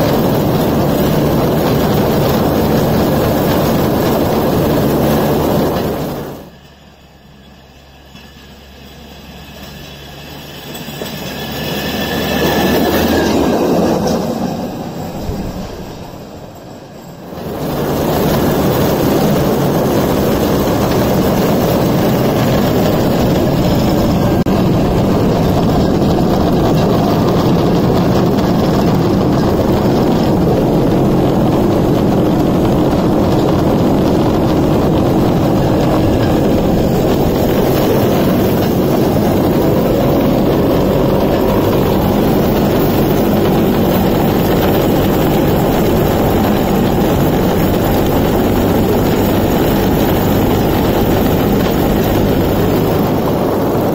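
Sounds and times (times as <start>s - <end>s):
two-stroke engine running: 0.0s - 6.5s, 17.3s - 53.9s
cart rolling along rails: 0.0s - 53.9s.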